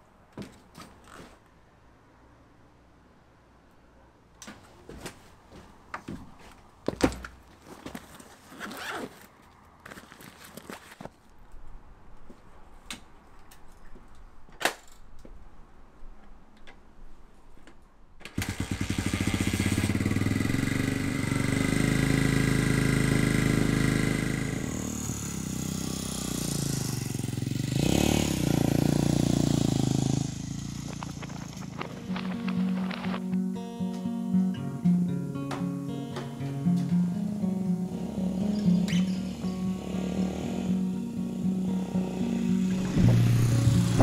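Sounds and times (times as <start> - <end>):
dirt bike engine revving: 18.4 - 33.2, 37.9 - 44.0.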